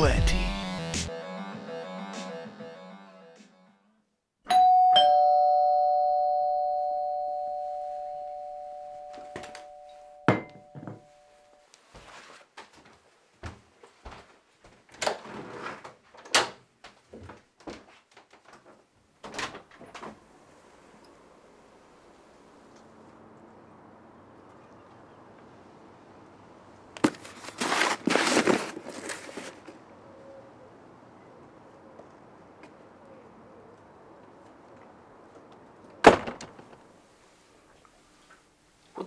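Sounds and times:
two-note doorbell chime: 0:04.5 - 0:11.6
rustling and shuffling: 0:10.9 - 0:20.6, 0:27.0 - 0:29.8.

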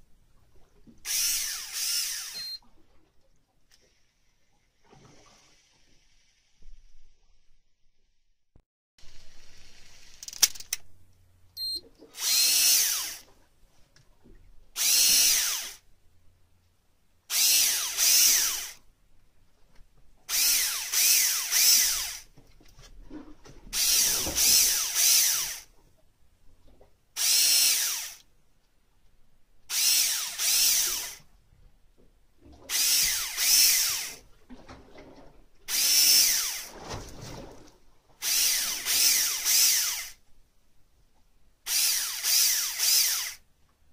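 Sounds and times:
fishing reel motor whirring: 0:01.1 - 0:02.6, 0:12.2 - 0:13.2, 0:14.8 - 0:15.8, 0:17.3 - 0:18.8, 0:20.3 - 0:22.3, 0:23.8 - 0:25.7, 0:27.2 - 0:28.2, 0:29.7 - 0:31.2, 0:32.7 - 0:34.2, 0:35.7 - 0:36.7, 0:38.2 - 0:40.2, 0:41.7 - 0:43.4
sharp clicks: 0:10.1 - 0:10.9.

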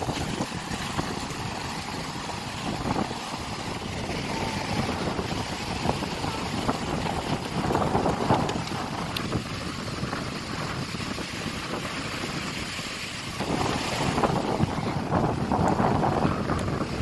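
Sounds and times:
sea surf breaking on beach: 0:00.0 - 0:17.0
wind buffeting microphone: 0:00.0 - 0:17.0.

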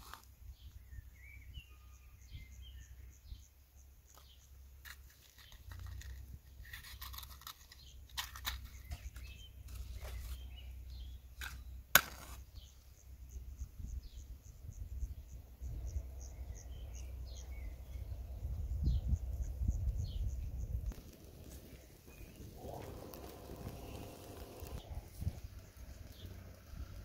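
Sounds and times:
matches striking matchbox: 0:04.8 - 0:10.4, 0:20.9 - 0:25.3.

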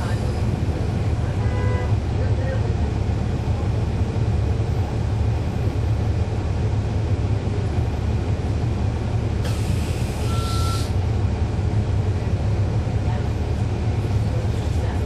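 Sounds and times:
bus diesel engine rumble: 0:00.0 - 0:15.0
short beep: 0:10.2 - 0:11.0.

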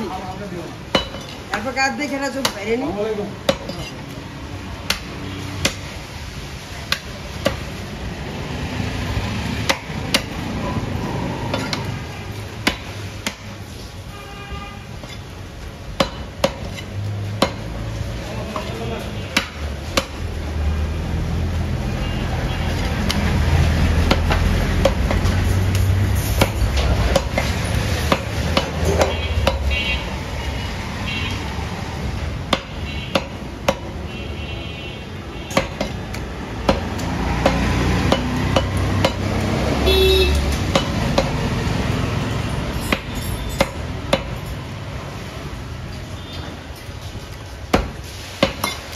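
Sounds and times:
cleaver chopping on wooden block: 0:12.6 - 0:13.5, 0:36.6 - 0:39.3, 0:47.7 - 0:48.8.

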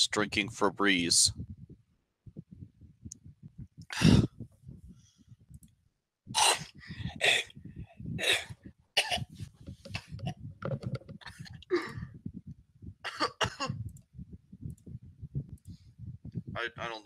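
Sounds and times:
man coughing loudly: 0:13.1 - 0:13.8.

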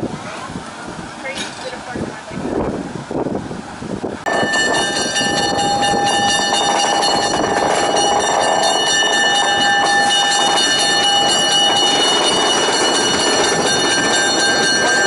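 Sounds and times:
diesel locomotive rumbling: 0:00.0 - 0:15.0
high metallic ringing tones: 0:04.3 - 0:15.0.

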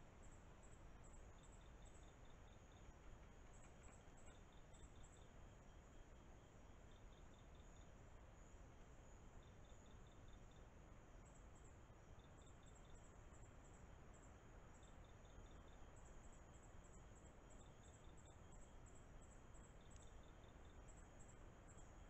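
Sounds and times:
microphone hiss: 0:00.0 - 0:22.0
night insects chirping: 0:00.0 - 0:22.0.

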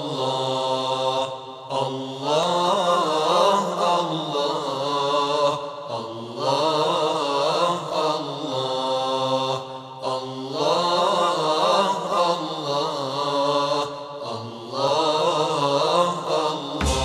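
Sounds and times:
man singing a hymn: 0:00.0 - 0:17.0
steady low drone: 0:16.8 - 0:17.0.

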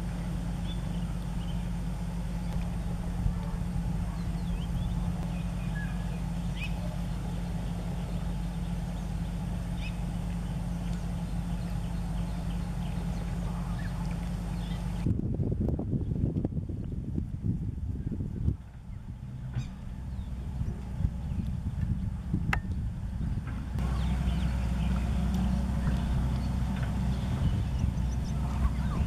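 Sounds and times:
low engine hum: 0:00.0 - 0:29.0.

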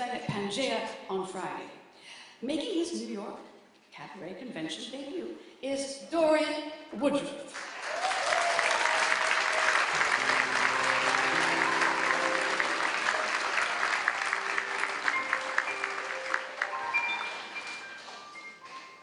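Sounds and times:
audience applauding: 0:07.6 - 0:18.9
piano and drums vamp: 0:09.8 - 0:19.0.

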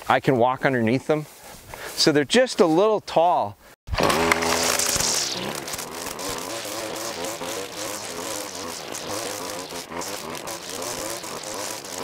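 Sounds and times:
string trimmer engine running: 0:03.9 - 0:12.0.

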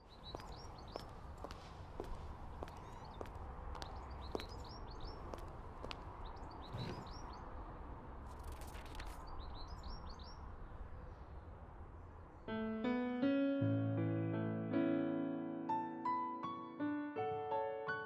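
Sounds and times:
small birds chirping: 0:00.0 - 0:07.7, 0:08.4 - 0:11.4.

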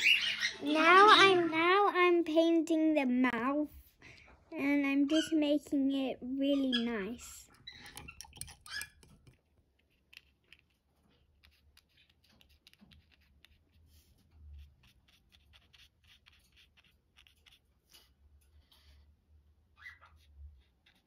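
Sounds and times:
paintbrush dabbing on paper: 0:07.9 - 0:18.0, 0:20.1 - 0:21.0.

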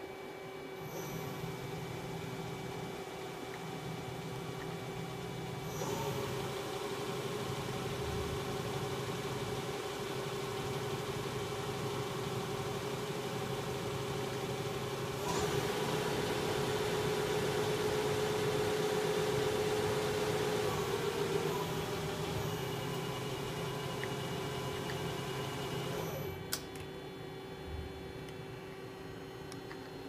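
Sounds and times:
lathe running with whine: 0:03.8 - 0:26.3.

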